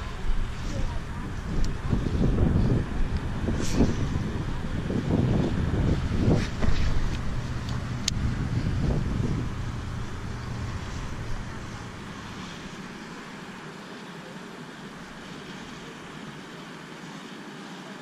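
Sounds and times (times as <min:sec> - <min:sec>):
wind buffeting microphone: 0:00.0 - 0:13.6
steady outdoor hiss: 0:00.0 - 0:18.0.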